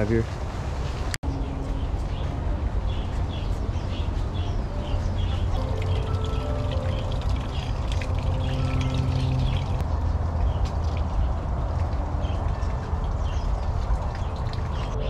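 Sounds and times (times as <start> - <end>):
fountain trickling into basin: 4.2 - 15.0.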